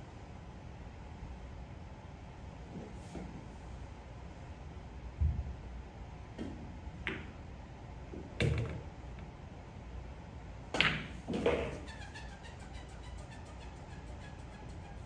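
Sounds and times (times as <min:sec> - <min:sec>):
pool balls clacking: 0:06.4 - 0:07.4, 0:08.1 - 0:09.2, 0:10.7 - 0:12.0.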